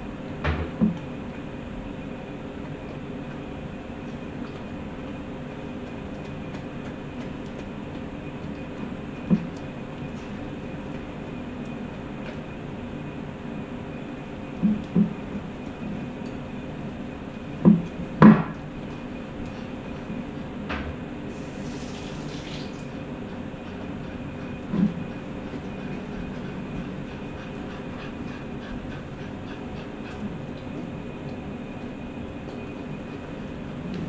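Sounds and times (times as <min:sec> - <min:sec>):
steady low hum: 0:00.0 - 0:34.0
dog eating from a plate: 0:00.9 - 0:13.4.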